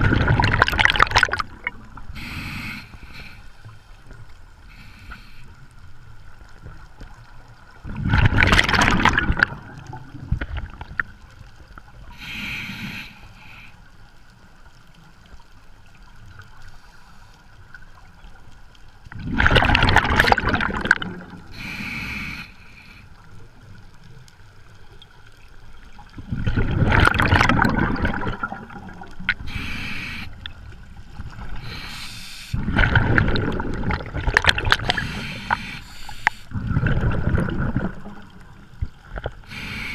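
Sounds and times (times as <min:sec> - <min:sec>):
gurgling exhaled bubbles: 0:00.0 - 0:02.1, 0:07.8 - 0:11.2, 0:19.1 - 0:21.5, 0:26.0 - 0:31.8, 0:32.5 - 0:35.8, 0:36.5 - 0:39.7
regulator inhalation hiss: 0:02.2 - 0:03.8, 0:04.7 - 0:05.6, 0:12.2 - 0:13.8, 0:21.5 - 0:23.2, 0:29.4 - 0:30.4, 0:31.6 - 0:32.6, 0:34.9 - 0:36.5, 0:39.5 - 0:39.9.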